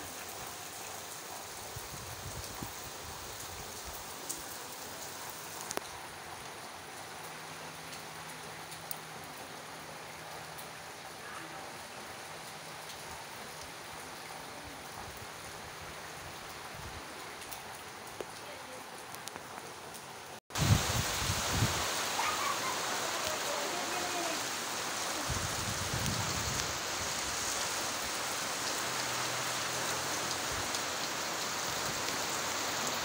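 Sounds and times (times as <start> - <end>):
steady rain hiss: 0.0 - 33.0
rain drip clicks: 5.5 - 9.4, 17.4 - 18.4, 19.0 - 20.1.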